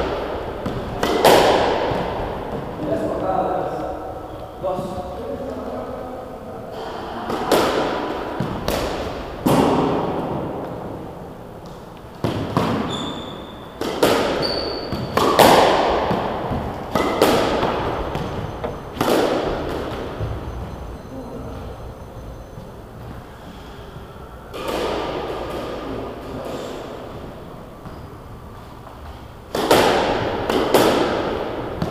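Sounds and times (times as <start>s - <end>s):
squash ball hitting rackets and walls: 0.0s - 4.4s, 6.7s - 20.8s, 24.4s - 28.0s, 28.9s - 31.9s
shoes squeaking on wooden floor: 12.6s - 15.2s, 16.1s - 24.1s.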